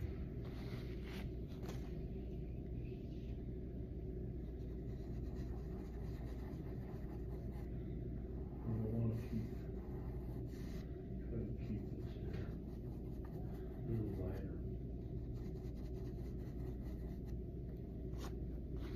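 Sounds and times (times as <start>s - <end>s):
low rumble: 0.0s - 5.6s
low room hum: 0.0s - 18.9s
pastel stick scratching on paper: 4.5s - 7.7s, 8.7s - 10.9s, 11.6s - 17.4s.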